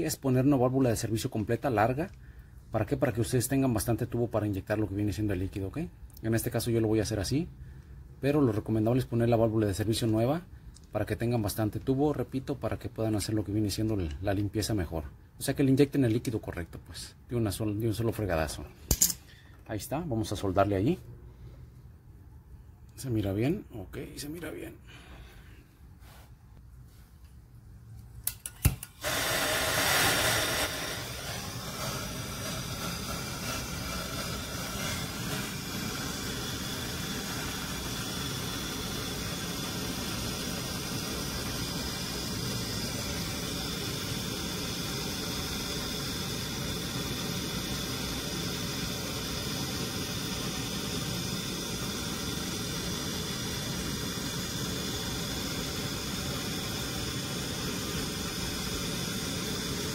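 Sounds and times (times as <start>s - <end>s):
torch flame hissing: 28.4s - 59.9s.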